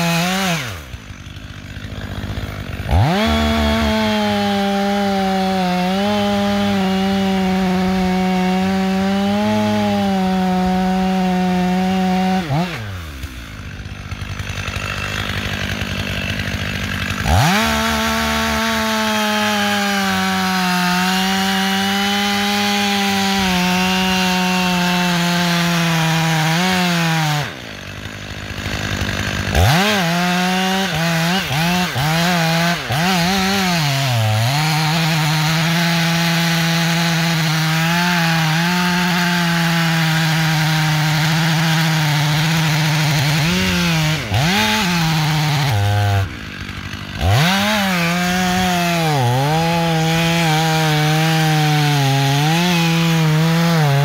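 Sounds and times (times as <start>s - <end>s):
chainsaw cutting wood: 0.0s - 54.0s.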